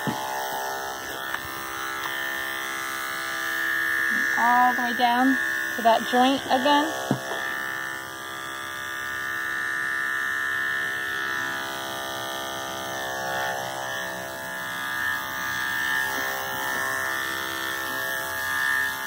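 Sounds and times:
electric clippers running: 0.0s - 19.0s.

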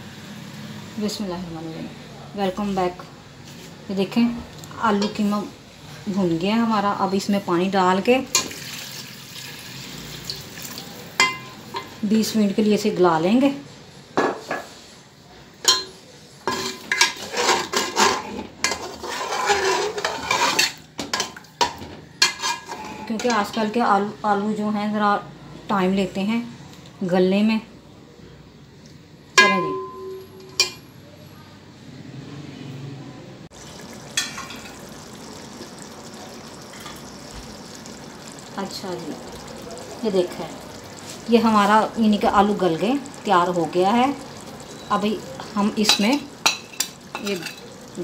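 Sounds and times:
curry simmering in a pot: 8.2s - 12.4s, 15.9s - 23.5s, 33.5s - 48.0s
spatula scraping a metal pot: 16.5s - 20.8s, 22.2s - 23.4s.

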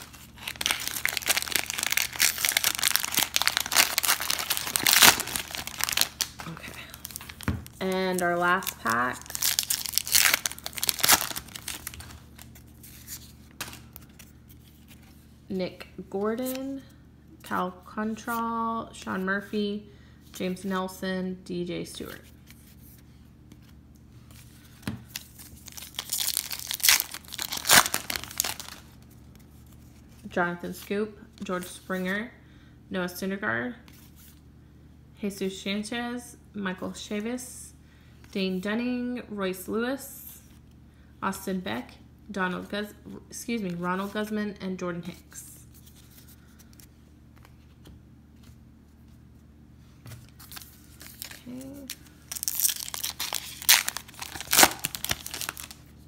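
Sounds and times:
plastic and foil wrappers crinkling: 0.0s - 15.0s, 25.1s - 29.1s, 50.2s - 56.0s.

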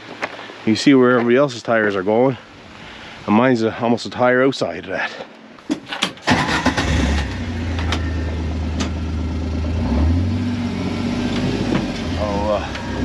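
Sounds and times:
vehicle engine running at low speed: 7.1s - 13.0s.

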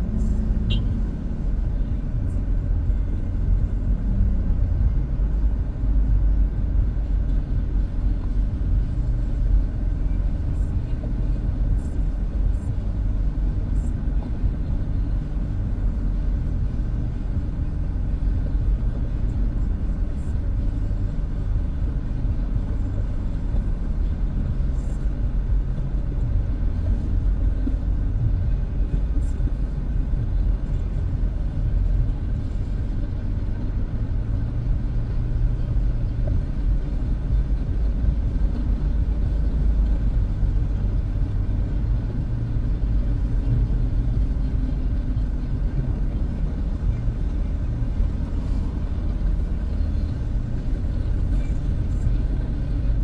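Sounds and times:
vehicle engine rumble from cabin: 0.0s - 53.0s.

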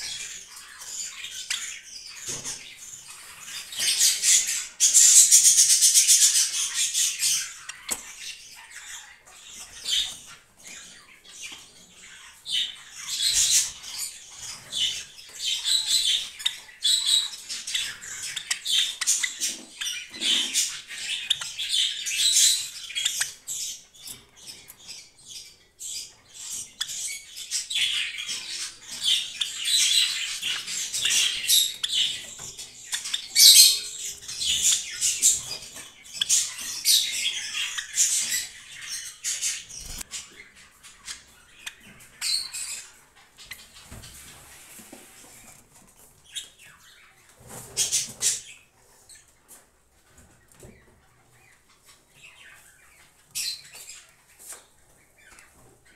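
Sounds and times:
sparrow chirping: 0.0s - 44.0s, 50.4s - 55.9s.

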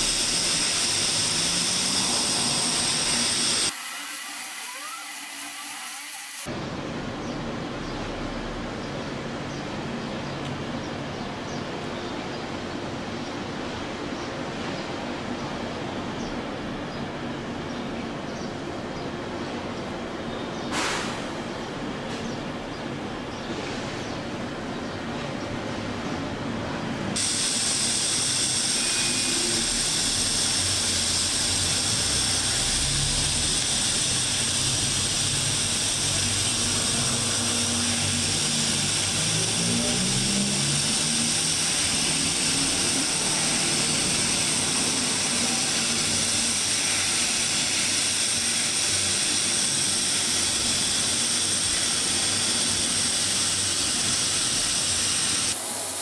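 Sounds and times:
thin high whine: 0.0s - 6.5s, 27.2s - 56.0s
welding arc hissing: 0.0s - 6.5s, 27.2s - 56.0s.

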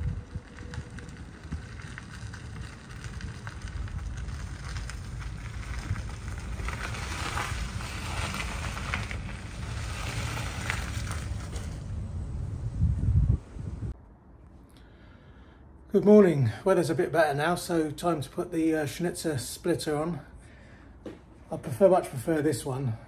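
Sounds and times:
tyres crunching over gravel: 0.0s - 13.1s
low wind rumble: 0.0s - 19.4s.

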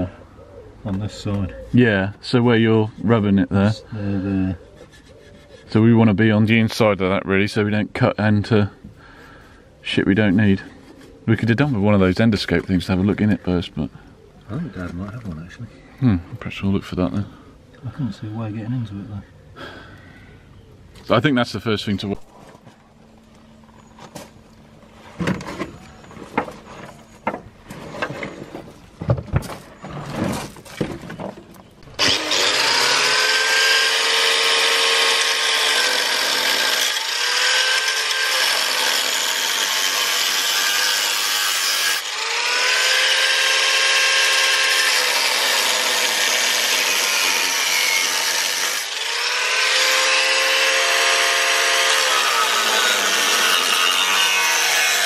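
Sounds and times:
angle grinder cutting steel: 32.0s - 55.0s.

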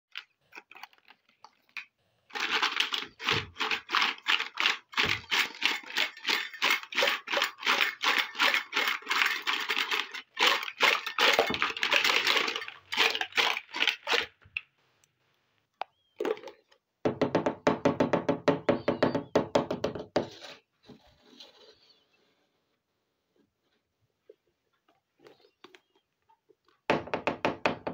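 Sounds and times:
plastic toys clattering in basin: 0.1s - 14.7s, 16.2s - 16.8s.

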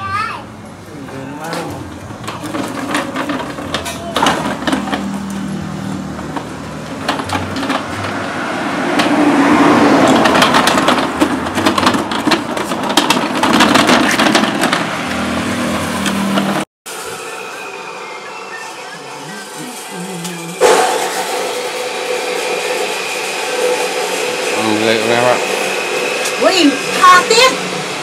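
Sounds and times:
cart wheels rattling over dirt: 2.1s - 5.2s, 9.8s - 14.9s.

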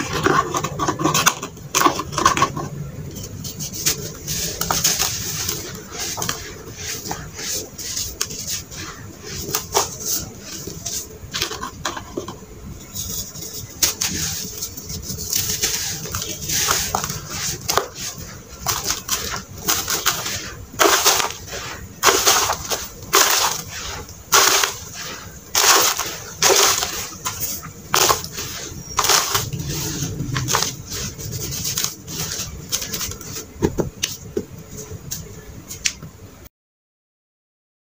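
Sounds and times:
hands crunching gritty sand: 3.7s - 11.1s, 13.0s - 33.5s.

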